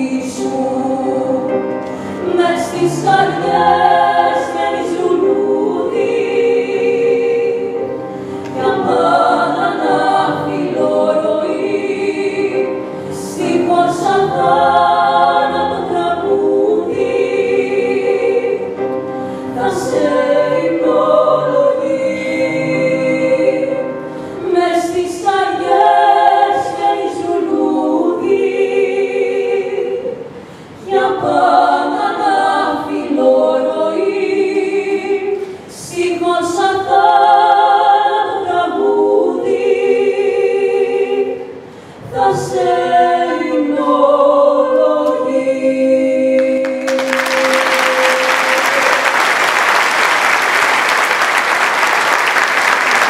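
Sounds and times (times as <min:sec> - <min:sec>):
women singing in harmony: 0:00.0 - 0:49.1
audience applause: 0:46.6 - 0:53.0.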